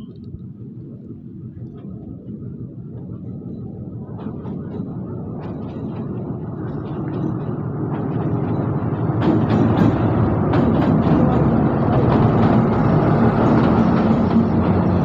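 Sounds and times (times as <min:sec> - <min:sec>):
locomotive engine rumble: 0:00.0 - 0:15.0
wheels clicking over rail joints: 0:03.9 - 0:15.0.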